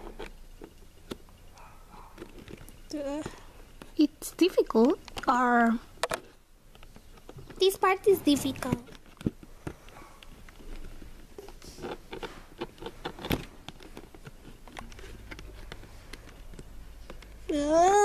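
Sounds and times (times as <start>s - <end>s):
person speaking: 7.6s - 9.0s
fingers prying cardboard flap: 10.7s - 17.4s.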